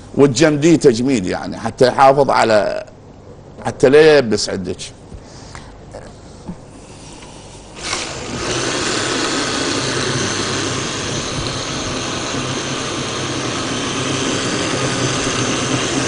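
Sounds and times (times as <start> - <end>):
electric blender running: 7.8 - 16.0.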